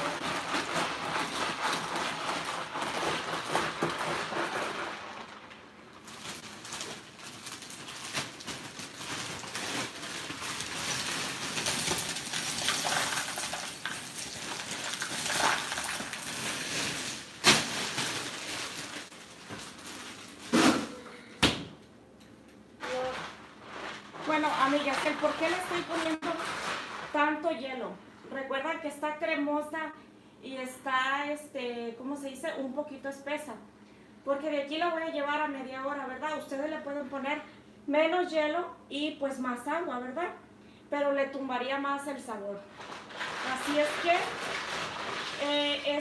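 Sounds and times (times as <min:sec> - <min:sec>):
ice cubes clattering: 0:00.0 - 0:20.2, 0:42.8 - 0:46.0.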